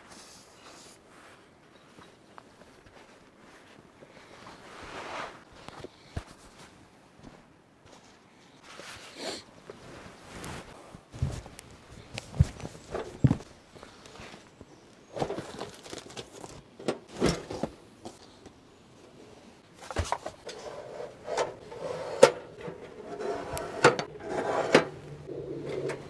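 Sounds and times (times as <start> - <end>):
knocks and rustles: 10.0 - 13.5, 19.8 - 20.7.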